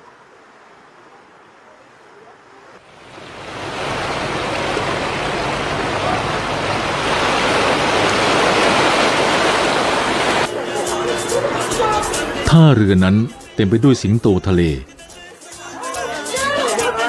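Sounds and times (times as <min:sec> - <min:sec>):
wind: 0:00.0 - 0:12.1
water rushing: 0:00.0 - 0:14.8.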